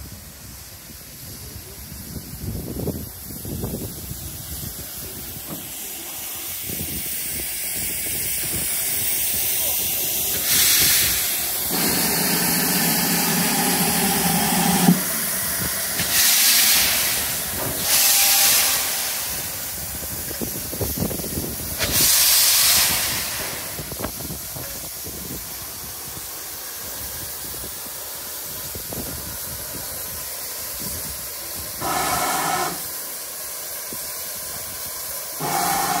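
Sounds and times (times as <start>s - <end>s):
steam hissing from drain cocks: 0.0s - 36.0s
steam locomotive whistle: 11.7s - 15.1s, 17.8s - 19.3s, 31.8s - 32.8s, 35.4s - 36.0s.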